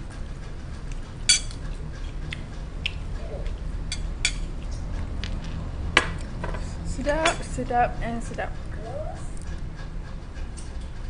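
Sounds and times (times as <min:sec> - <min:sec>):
person chewing food: 0:00.1 - 0:06.4.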